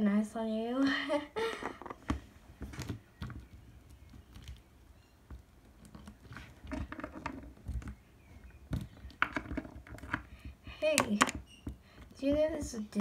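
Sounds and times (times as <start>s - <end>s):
handling clicks and rustles: 1.5s - 13.0s.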